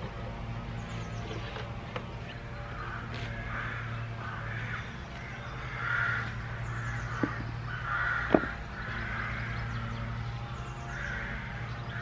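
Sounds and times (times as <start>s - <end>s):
low hum: 0.0s - 12.0s
crows cawing: 2.6s - 10.1s, 10.8s - 12.0s.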